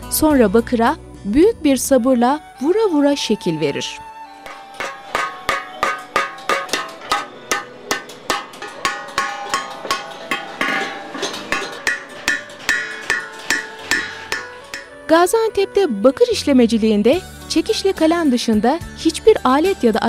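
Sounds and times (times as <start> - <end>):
hammer striking copper: 4.5 - 15.2.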